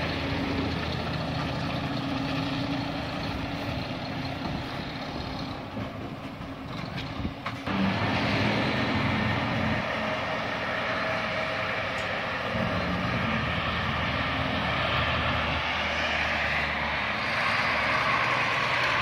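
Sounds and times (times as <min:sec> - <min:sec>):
diesel truck engine running: 0:00.0 - 0:19.0.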